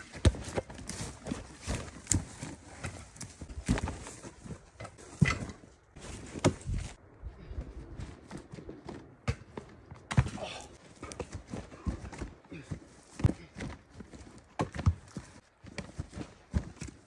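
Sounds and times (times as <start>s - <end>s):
footsteps on dry forest ground: 0.0s - 5.1s, 10.8s - 17.0s.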